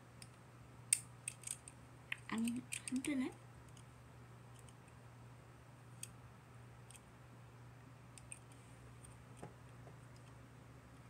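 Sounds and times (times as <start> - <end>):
plastic model parts clicking: 0.9 - 1.8, 2.4 - 3.1, 8.2 - 9.2.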